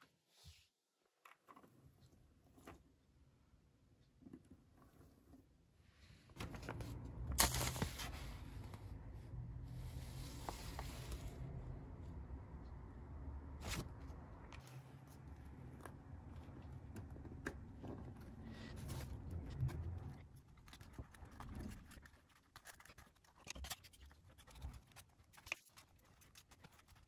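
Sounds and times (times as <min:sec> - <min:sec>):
wooden model set on desk: 0:00.0 - 0:27.0
low handling rumble: 0:06.4 - 0:21.8.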